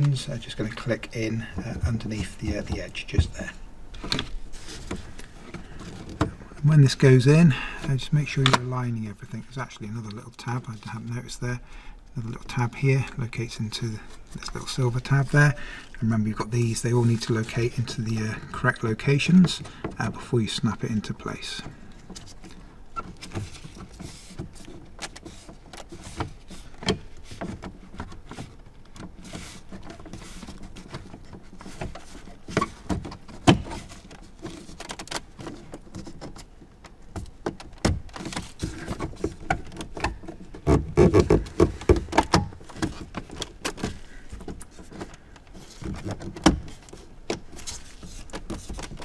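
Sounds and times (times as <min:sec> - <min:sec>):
plastic knocks: 0:37.1 - 0:44.6.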